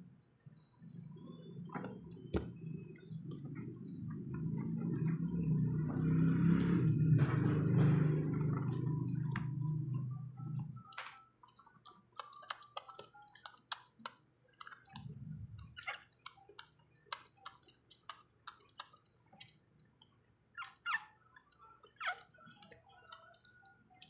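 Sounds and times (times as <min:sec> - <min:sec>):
puppy suckling wet smacking: 0:11.4 - 0:20.2
puppy squeak: 0:15.6 - 0:16.5, 0:20.6 - 0:22.8.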